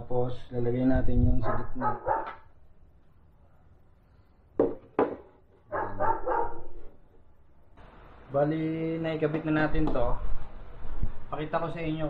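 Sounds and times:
dog barking: 0:01.4 - 0:02.5, 0:05.7 - 0:06.9.

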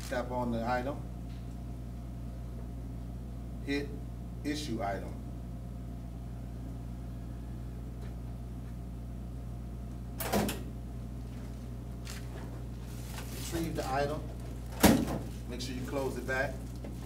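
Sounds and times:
steady low hum: 0:00.0 - 0:17.0
vending locker drawer clunk: 0:14.7 - 0:15.3.

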